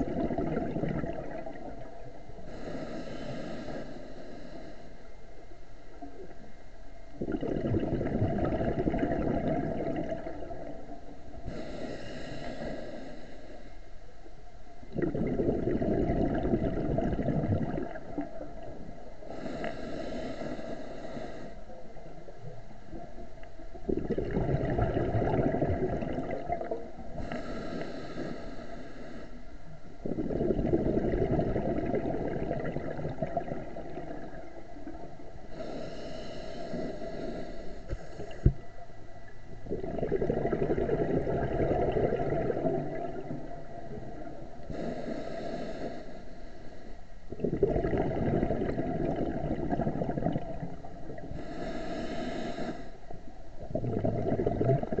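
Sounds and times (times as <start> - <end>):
exhaled bubbles rushing: 0.0 - 2.2, 7.2 - 11.1, 14.9 - 19.0, 23.8 - 27.0, 30.0 - 35.1, 39.6 - 44.6, 47.3 - 51.4, 53.6 - 55.0
diver breathing through regulator: 2.4 - 5.2, 11.4 - 13.9, 19.2 - 21.8, 27.1 - 31.4, 35.4 - 38.7, 40.8 - 47.0, 51.0 - 53.2.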